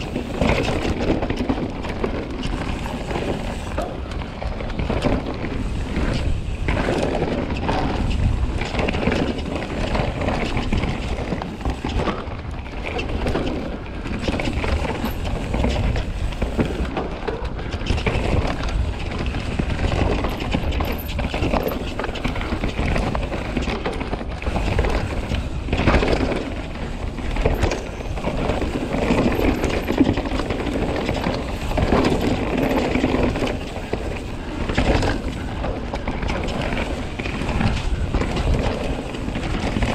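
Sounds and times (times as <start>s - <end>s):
bike rattling over bumps: 0.0s - 39.9s
tyres on dirt trail: 0.0s - 39.9s
wind rumbling on microphone: 0.0s - 39.9s.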